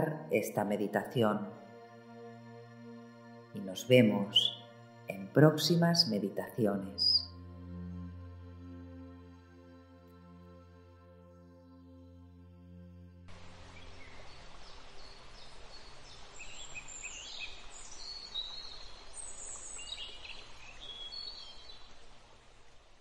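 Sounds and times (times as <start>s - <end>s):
ambient music drone: 0.0s - 15.4s
steady outdoor hiss: 0.0s - 23.0s.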